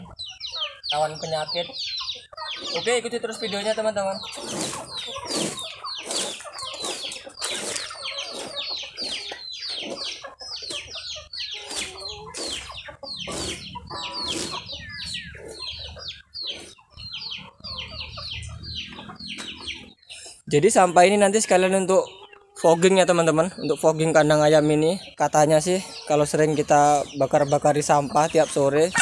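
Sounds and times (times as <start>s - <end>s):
chickens clucking: 0.0s - 29.0s
rake sweeping dry straw: 4.4s - 9.2s.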